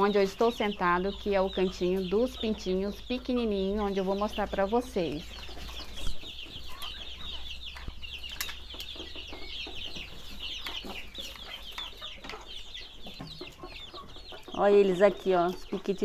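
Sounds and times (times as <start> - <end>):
baby chicks peeping: 0.0 - 16.0.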